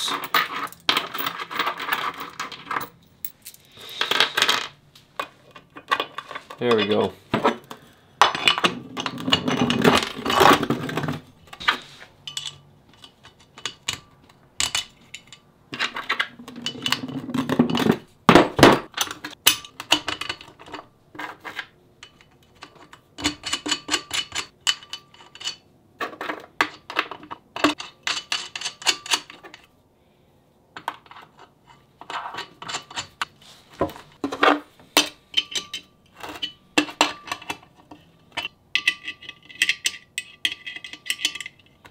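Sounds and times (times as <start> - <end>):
metal hardware clinking: 0.0 - 3.7, 11.5 - 17.1, 35.0 - 41.9.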